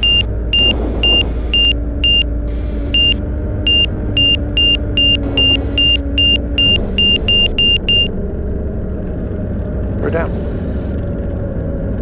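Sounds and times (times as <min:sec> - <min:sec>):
short high warning beeps: 0:00.0 - 0:02.2, 0:03.0 - 0:08.1
aircraft engine and propeller drone: 0:00.0 - 0:12.0.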